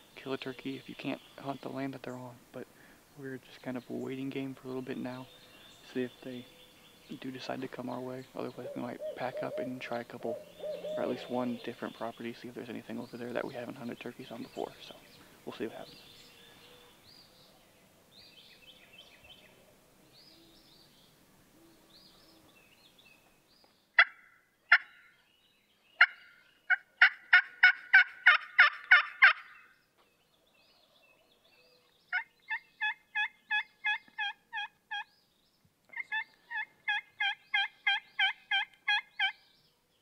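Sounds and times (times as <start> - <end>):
faint bird chirps: 8.2 - 24.0
turkey call yelps: 10.3 - 11.3, 24.0 - 25.1, 26.0 - 29.7, 32.1 - 35.1, 35.9 - 39.4.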